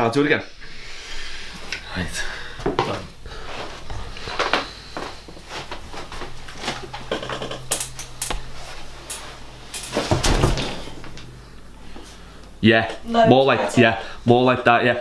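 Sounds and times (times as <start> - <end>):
chair clicks and knocks: 6.5 - 8.4.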